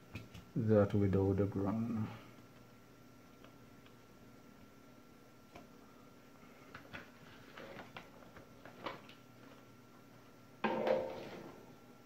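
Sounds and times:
faint clicks and handling noises: 3.3s - 4.0s, 6.6s - 9.7s.

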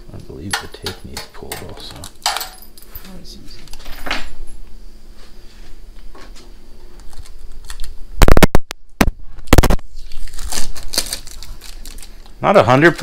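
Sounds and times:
adhesive tape ripping: 9.5s - 12.2s.

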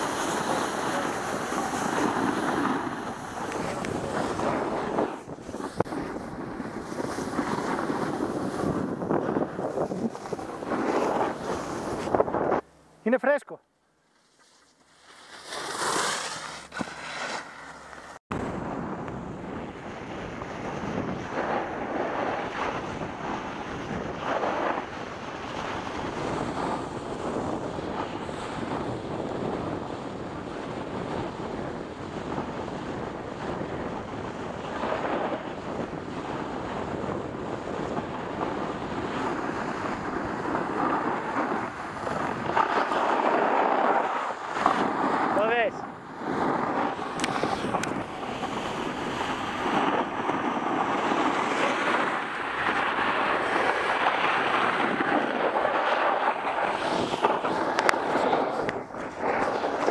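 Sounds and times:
skis scraping on packed snow: 0.0s - 12.6s, 14.0s - 18.2s, 38.6s - 45.6s, 46.3s - 59.9s
wind rushing over microphone: 0.0s - 13.1s, 15.4s - 59.9s.

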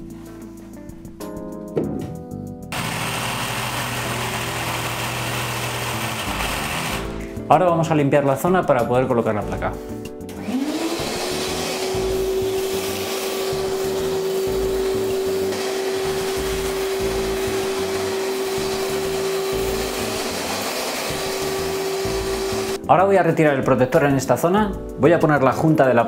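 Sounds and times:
workshop vacuum motor whine: 2.7s - 7.3s, 10.4s - 22.8s.

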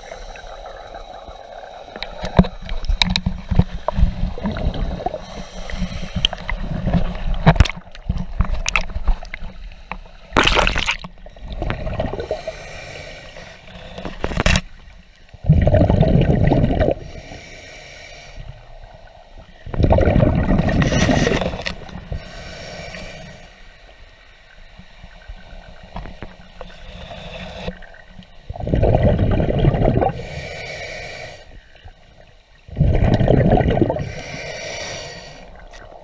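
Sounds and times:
water gurgling and sloshing: 0.0s - 17.6s, 18.4s - 30.6s, 31.4s - 36.0s
underwater rumbling through weeds: 1.9s - 9.6s, 10.3s - 12.4s, 15.4s - 17.0s, 19.6s - 22.3s, 28.5s - 30.2s, 32.7s - 34.2s
water splashing: 1.9s - 9.6s, 10.3s - 12.5s.

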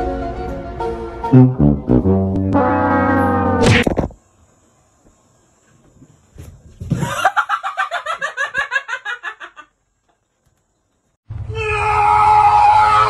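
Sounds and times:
music with reedy notes: 1.2s - 3.8s.

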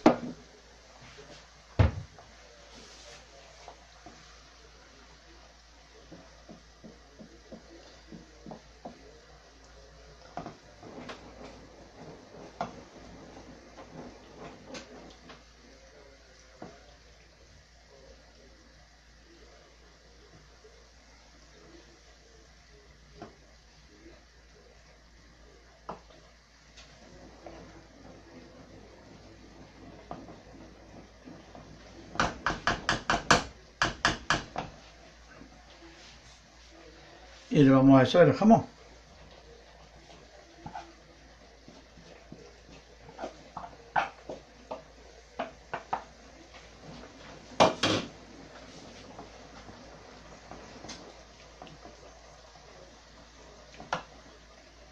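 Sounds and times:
wooden spoon knocking on a pan: 6.0s - 9.0s, 32.1s - 34.8s, 43.2s - 46.1s, 47.6s - 48.1s, 53.8s - 54.1s
wooden spoon scraping a frying pan: 10.3s - 15.6s, 25.9s - 35.2s, 39.0s - 54.3s.

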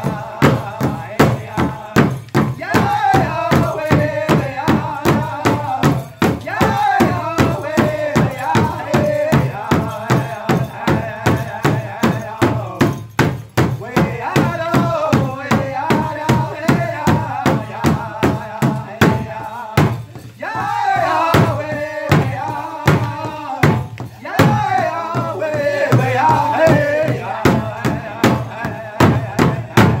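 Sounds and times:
high voice singing alone: 0.0s - 12.5s, 20.4s - 30.0s
big drum steady fast beat: 0.0s - 30.0s
group of men singing: 0.0s - 30.0s.

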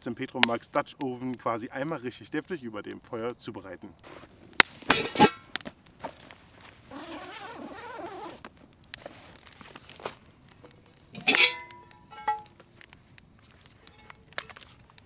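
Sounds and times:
cast iron clinking: 4.8s - 5.6s, 11.1s - 12.6s
zipper: 6.9s - 8.4s.

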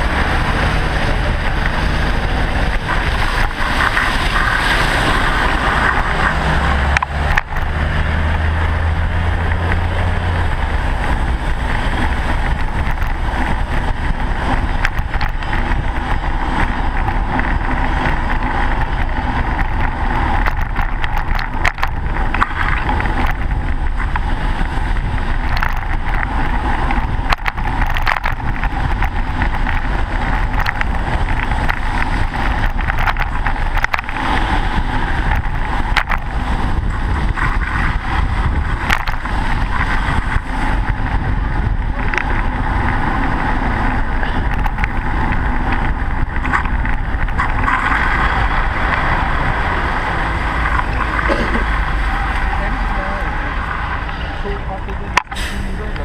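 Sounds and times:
car traffic passing: 0.0s - 56.0s
road rumble: 0.0s - 56.0s
wind rush: 0.0s - 56.0s
bicycle clicks and knocks: 2.6s - 8.5s, 11.2s - 49.6s.

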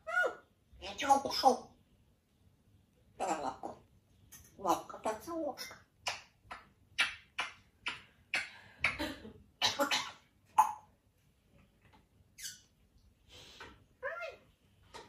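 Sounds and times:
parrot clicking sounds: 4.3s - 9.0s.

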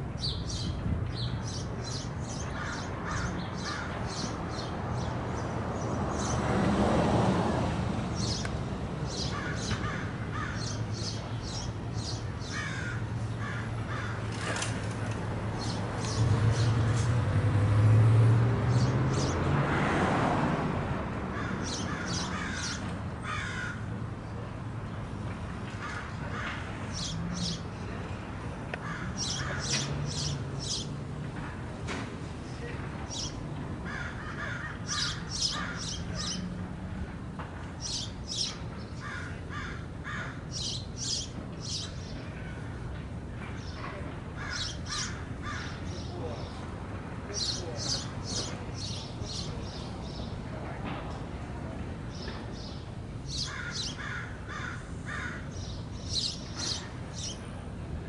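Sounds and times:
passing traffic: 0.0s - 58.0s
birds calling: 0.2s - 5.4s, 9.1s - 17.2s, 21.4s - 23.8s, 25.7s - 27.9s, 28.8s - 31.0s, 33.1s - 36.6s, 37.8s - 43.0s, 44.4s - 46.7s, 47.3s - 50.4s, 52.1s - 57.5s.

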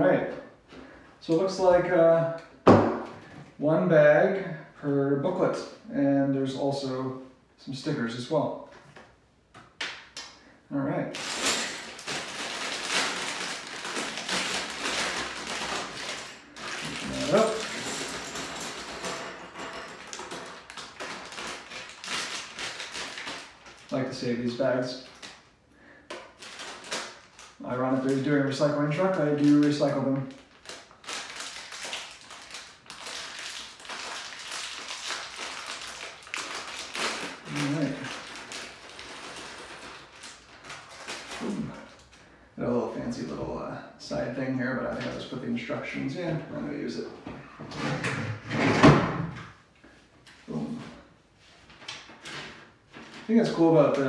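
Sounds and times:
plastic bag crinkling: 11.1s - 19.2s, 19.9s - 25.5s, 26.2s - 42.2s.

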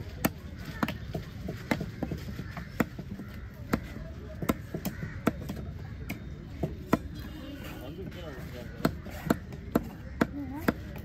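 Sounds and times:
knife chopping fish on wooden block: 1.6s - 7.1s, 8.7s - 11.0s.

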